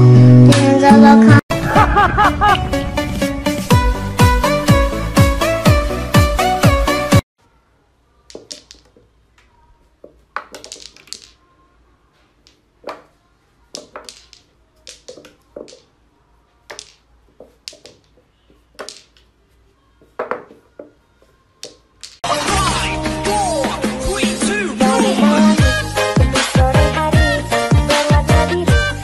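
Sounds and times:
small balls clacking together: 8.3s - 9.5s, 10.1s - 11.5s, 12.3s - 16.0s, 16.6s - 19.4s, 21.6s - 22.2s
balls knocking on rails: 8.3s - 11.4s, 12.3s - 16.0s, 16.6s - 19.4s, 20.0s - 21.0s, 21.6s - 22.2s.

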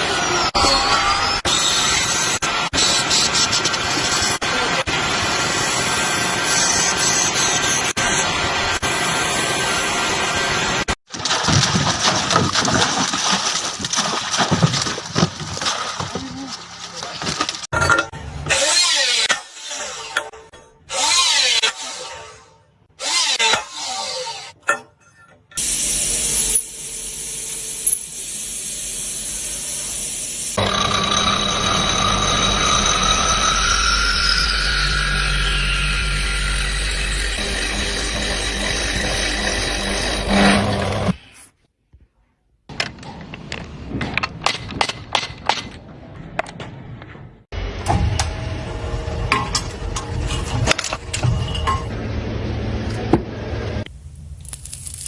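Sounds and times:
outdoor voices: 4.4s - 5.0s, 11.2s - 20.0s
metal lathe cutting hiss: 25.6s - 33.7s
lathe cutter head whine: 30.6s - 40.4s.

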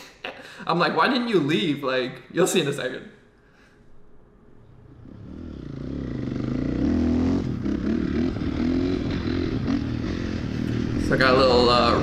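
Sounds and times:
dirt bike engine revving: 4.8s - 12.0s.

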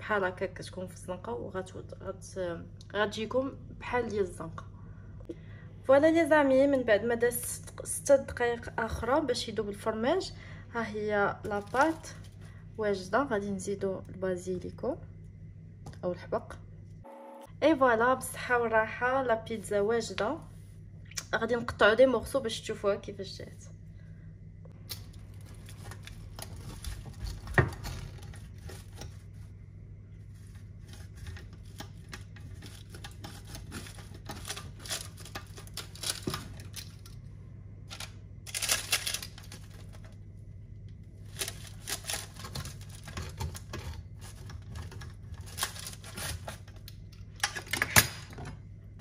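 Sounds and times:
low steady hum: 0.0s - 49.0s
pizza cutter crunching crust: 30.4s - 37.0s, 41.2s - 46.9s.

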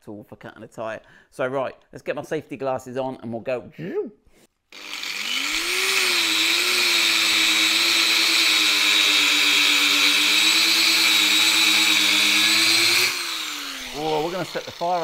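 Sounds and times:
angle grinder cutting rubber tyre: 4.7s - 15.0s.

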